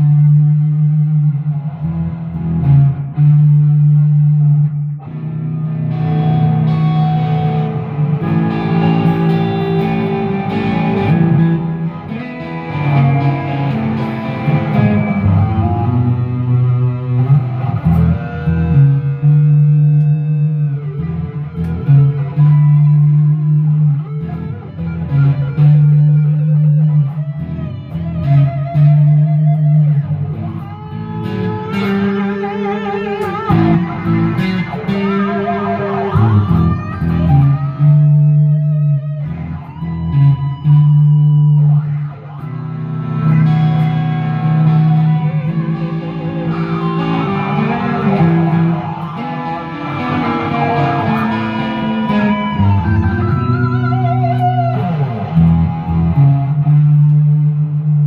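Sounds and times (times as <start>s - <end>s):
electric guitar lead with vibrato: 0.0s - 58.0s
electric guitar low rhythm: 0.0s - 58.0s.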